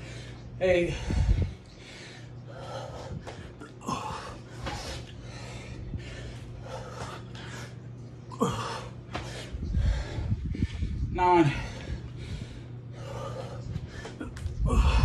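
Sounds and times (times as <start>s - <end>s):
man breathing hard: 0.0s - 15.0s.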